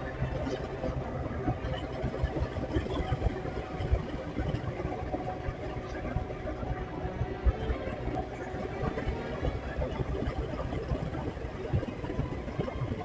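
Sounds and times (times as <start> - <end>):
motorcycle engine running: 0.0 - 13.0
wind buffeting microphone: 0.0 - 13.0.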